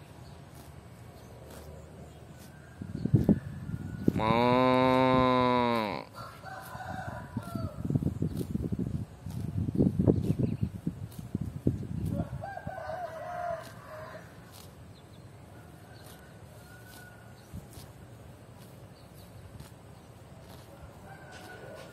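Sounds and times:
cow tearing and chewing grass: 0.0 - 21.9
rooster crowing: 6.0 - 7.9, 12.2 - 14.4, 15.8 - 17.4, 20.8 - 21.9.

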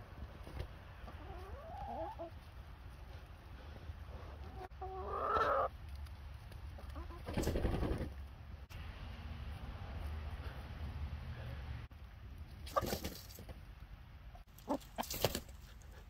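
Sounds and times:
hens clucking: 0.4 - 6.0, 6.7 - 8.2, 14.3 - 16.0.

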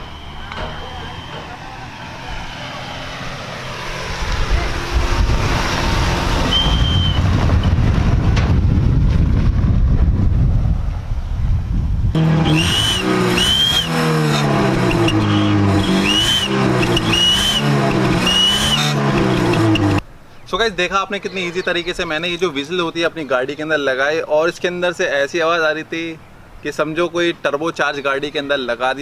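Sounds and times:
exhaust whistle: 0.0 - 2.8, 6.3 - 7.7, 12.2 - 20.0
car engine revving: 0.0 - 8.4, 12.1 - 20.0.

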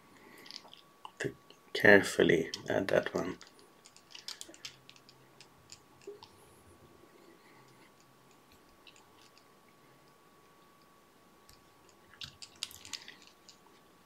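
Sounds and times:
feather and thread crackling: 2.4 - 6.5, 11.5 - 14.0.

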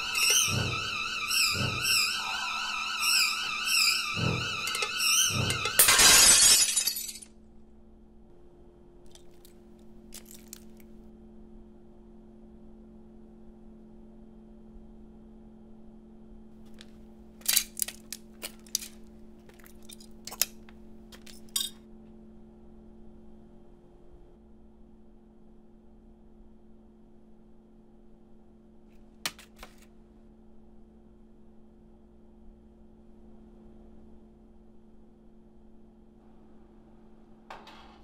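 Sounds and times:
glass shattering: 4.8 - 7.3.

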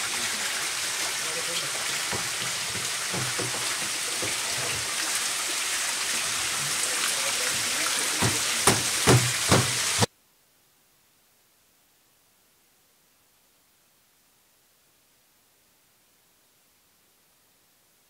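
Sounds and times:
liquid pouring and splashing: 0.0 - 10.1.

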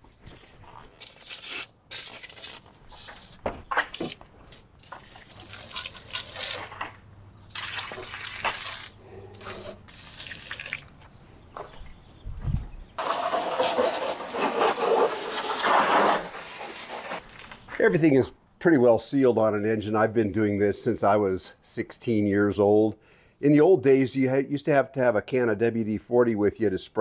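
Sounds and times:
hose spraying water: 1.0 - 3.4, 4.8 - 6.9, 7.5 - 10.8.

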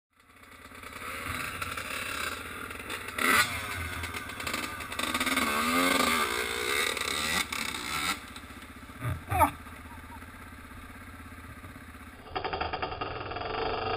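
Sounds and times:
dirt bike engines revving: 0.3 - 12.6.

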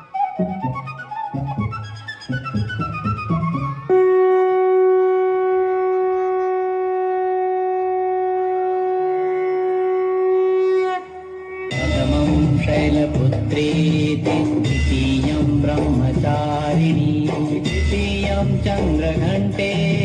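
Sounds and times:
conch shell blown: 3.6 - 13.2.

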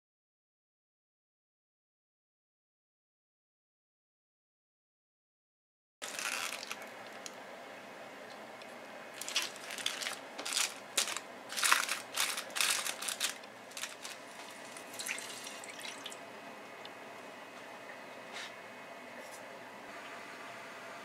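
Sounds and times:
aluminium foil crinkling: 6.0 - 7.3, 9.2 - 16.2
water pouring into frying pan: 14.3 - 16.2.

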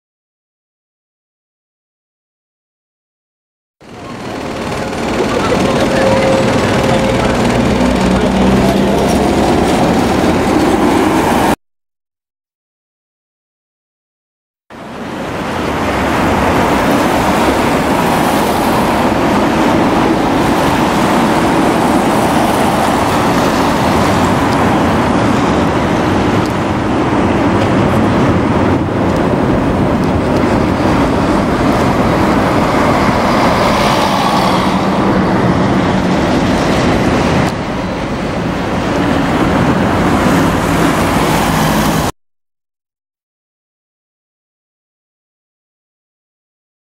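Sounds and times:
vehicles passing on road: 3.8 - 11.6, 14.7 - 42.1.

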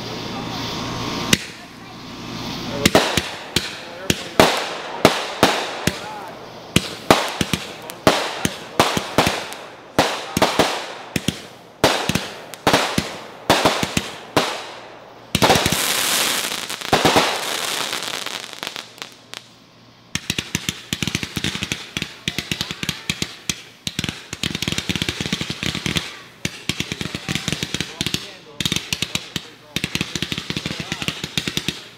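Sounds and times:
loud firework hiss: 0.0 - 31.9
fireworks bangs: 0.6 - 19.5, 20.1 - 31.9
rapid crackling pops: 2.8 - 19.5, 20.1 - 31.9.

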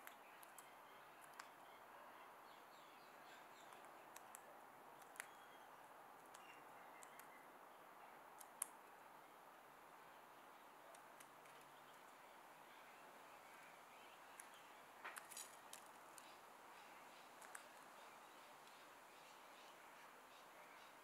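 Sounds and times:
low steady hiss: 0.0 - 21.0.

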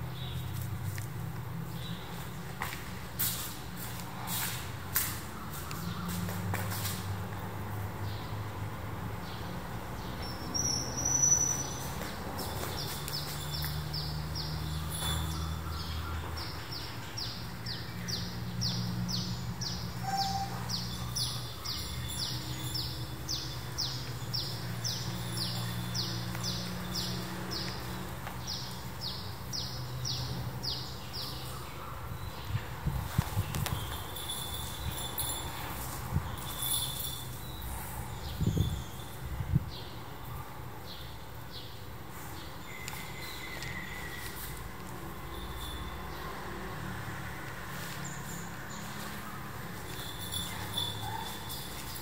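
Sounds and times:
bird chirping: 10.0 - 27.8.

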